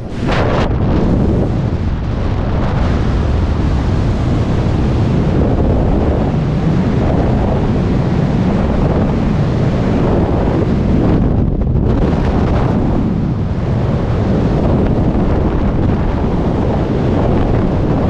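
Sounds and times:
freefall wind buffeting microphone: 0:00.0 - 0:18.0.

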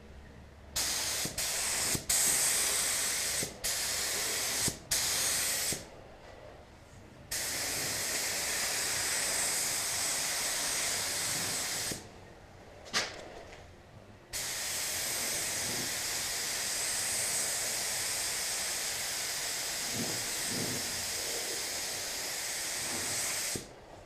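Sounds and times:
spray gun hissing: 0:00.8 - 0:05.9, 0:07.3 - 0:12.0, 0:14.4 - 0:23.7.

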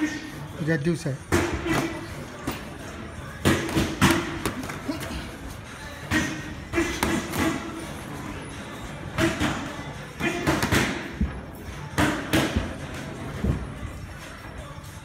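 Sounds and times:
boxing gloves thudding: 0:03.4 - 0:05.1.

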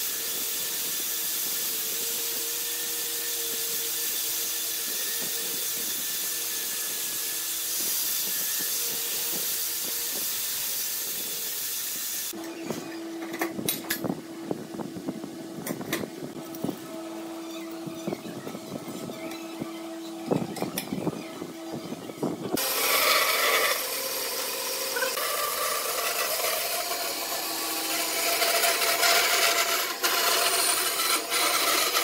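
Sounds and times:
angle grinder sanding metal: 0:00.0 - 0:12.4, 0:20.1 - 0:32.0.

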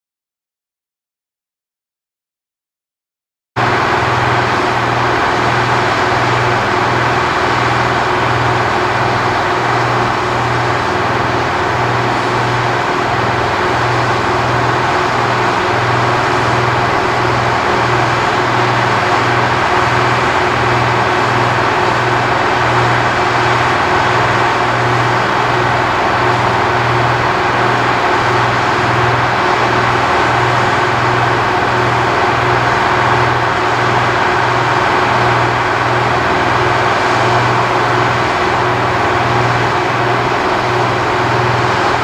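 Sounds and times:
jet engines droning: 0:03.6 - 0:42.0.

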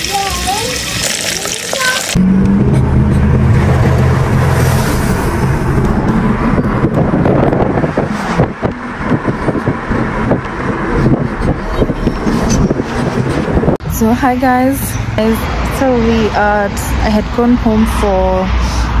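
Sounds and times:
car engine and road noise: 0:00.0 - 0:19.0
tyre and wind noise: 0:01.8 - 0:14.0.

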